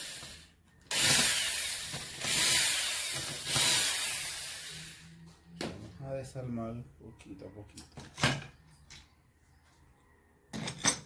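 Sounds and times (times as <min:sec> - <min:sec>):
cordless drill spinning out bolts: 0:00.0 - 0:05.0.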